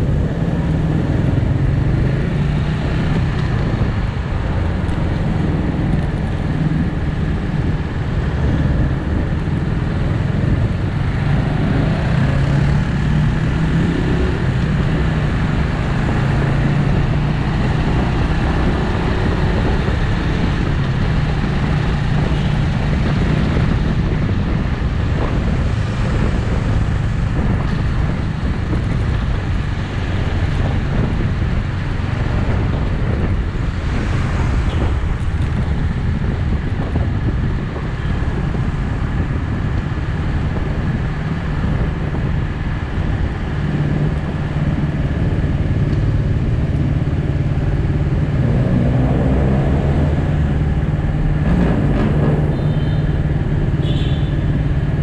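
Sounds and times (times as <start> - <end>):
road and wind noise: 0.0 - 55.0.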